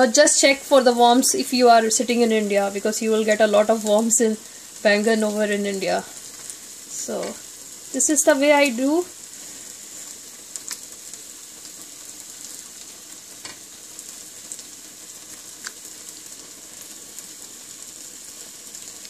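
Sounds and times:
spices sizzling in oil: 0.0 - 19.0.

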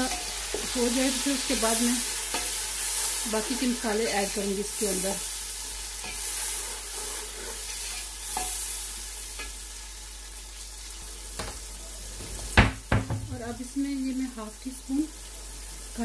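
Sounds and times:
onions sizzling in hot oil: 0.0 - 16.0
spatula stirring and scraping: 5.9 - 8.7.

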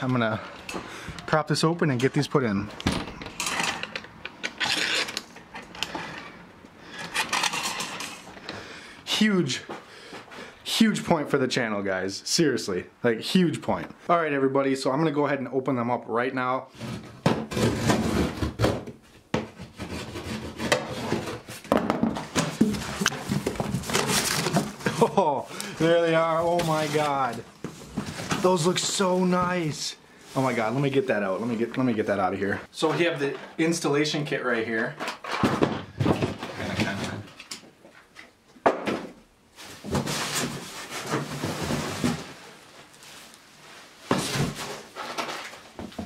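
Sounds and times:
packing tape being cut: 4.5 - 5.4
cardboard and plastic packaging rustling: 16.7 - 33.8, 34.6 - 38.4, 39.0 - 46.0.

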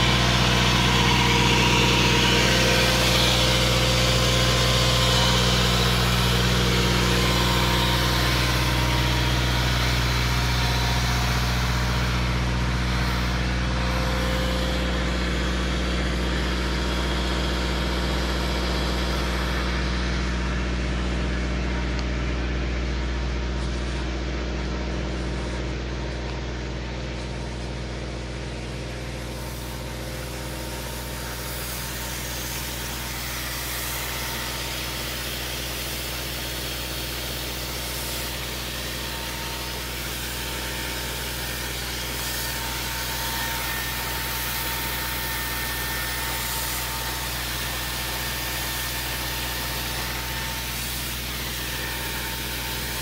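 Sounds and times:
tractor diesel engine droning: 0.0 - 53.0
sprinkler spraying water hiss: 29.2 - 53.0.

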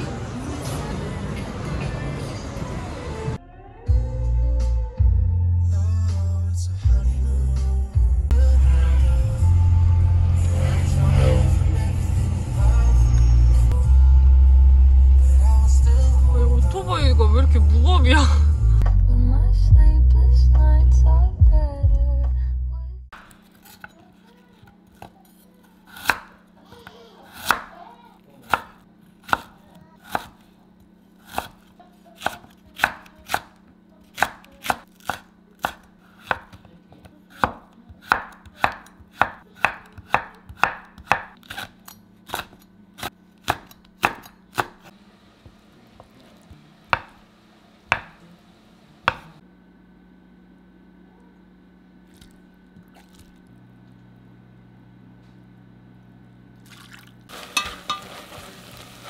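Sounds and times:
knife chopping on wooden board: 25.9 - 26.4, 27.4 - 27.8, 28.4 - 30.4, 31.2 - 45.6, 46.9 - 47.2, 47.9 - 48.2, 49.1 - 49.4.

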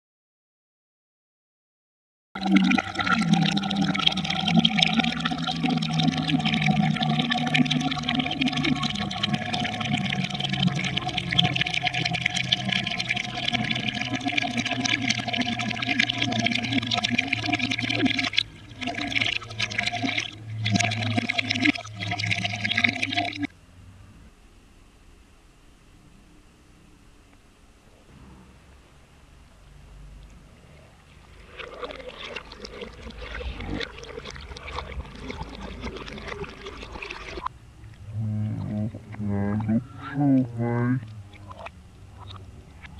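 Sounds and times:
water pouring into jar: 2.4 - 23.5, 31.0 - 39.9.

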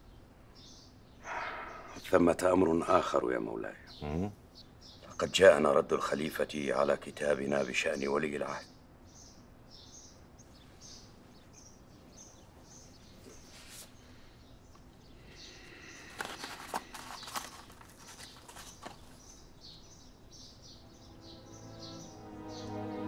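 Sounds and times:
birds chirping: 0.0 - 23.0
stiff paper rustling: 15.7 - 19.4.

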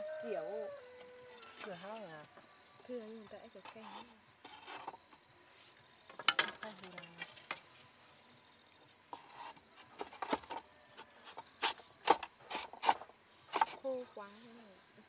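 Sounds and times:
bamboo poles knocking and clattering: 6.1 - 7.6, 9.1 - 10.6, 11.2 - 13.8.

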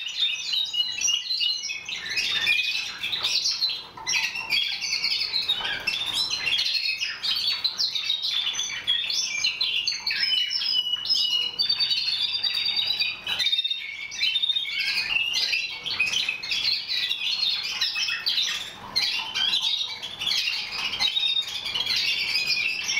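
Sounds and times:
canaries singing: 0.0 - 22.9.

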